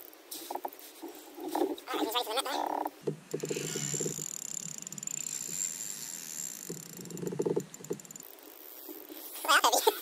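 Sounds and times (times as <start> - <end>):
fishing reel clicking: 3.5 - 8.9.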